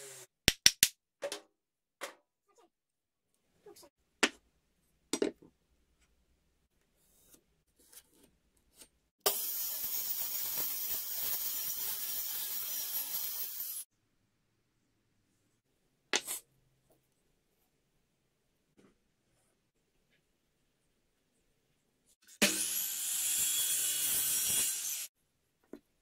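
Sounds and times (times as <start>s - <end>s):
mitre saw cutting wood: 9.3s - 13.8s, 22.3s - 25.1s.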